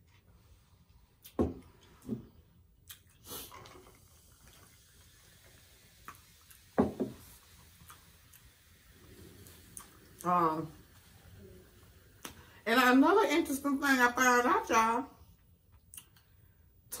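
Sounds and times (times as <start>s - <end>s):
sipping through a straw: 2.9s - 10.3s
soda poured into a glass: 3.3s - 12.6s.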